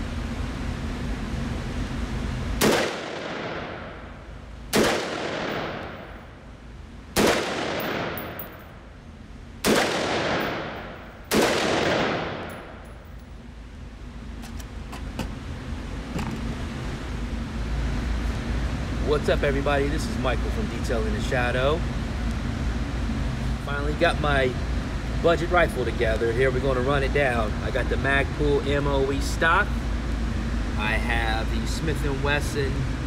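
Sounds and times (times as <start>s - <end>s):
rifle shots echoing indoors: 2.6s - 6.3s, 7.1s - 8.8s, 9.6s - 12.9s.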